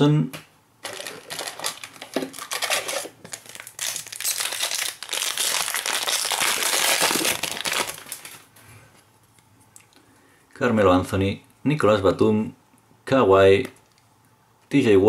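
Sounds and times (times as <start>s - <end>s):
foil wrapper crinkling: 0.8s - 8.5s.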